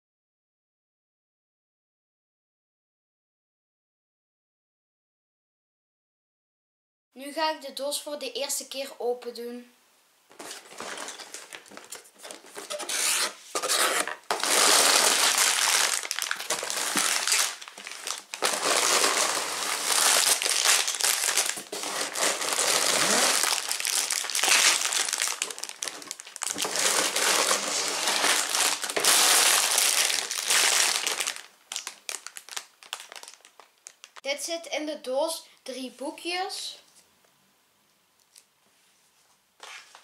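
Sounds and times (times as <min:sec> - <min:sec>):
plastic bags crinkling: 0:10.3 - 0:34.3.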